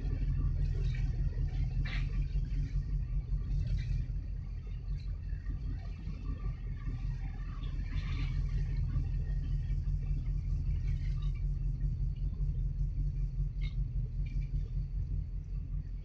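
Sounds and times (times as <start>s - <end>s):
faint clatter: 0.0s - 16.0s
low rumble of container port: 0.0s - 16.0s.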